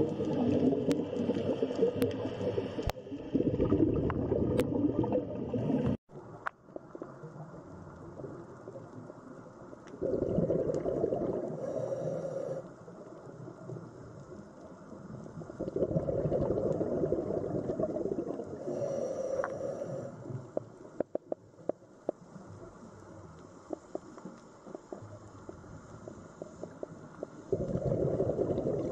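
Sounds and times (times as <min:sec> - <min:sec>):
diver exhaling bubbles: 0:00.0 - 0:06.0, 0:10.0 - 0:12.0, 0:15.6 - 0:19.7, 0:27.5 - 0:28.9.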